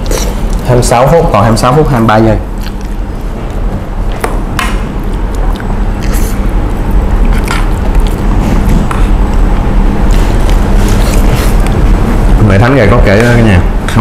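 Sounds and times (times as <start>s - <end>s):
steady background hum: 0.0s - 14.0s
person biting and chewing: 2.5s - 3.0s, 7.2s - 9.5s, 10.5s - 11.8s.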